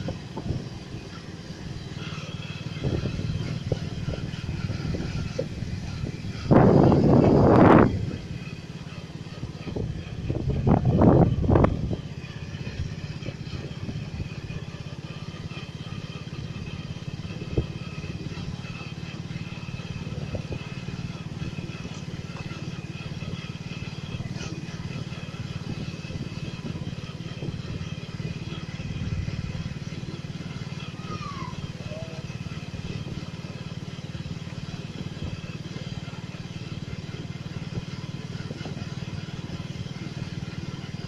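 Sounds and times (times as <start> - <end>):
vehicle engine drone: 0.0 - 41.0.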